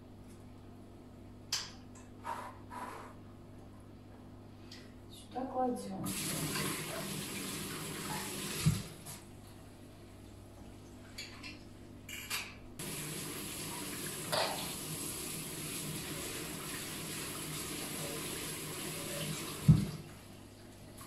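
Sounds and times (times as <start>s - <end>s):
tap running into steel sink: 14.2s - 14.7s.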